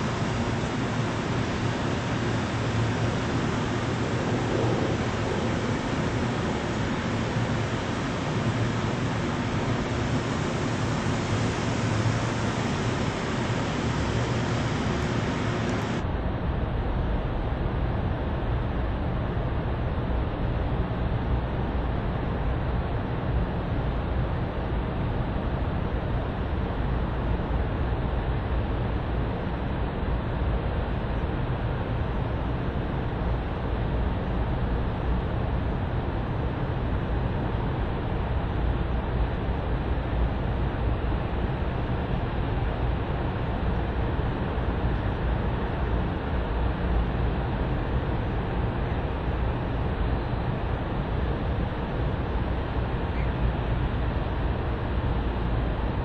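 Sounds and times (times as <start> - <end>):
dull rumble: 0.0 - 16.0
steady background hiss: 0.0 - 16.0
low hum: 0.0 - 16.2
steady low rumbling noise: 0.0 - 56.0.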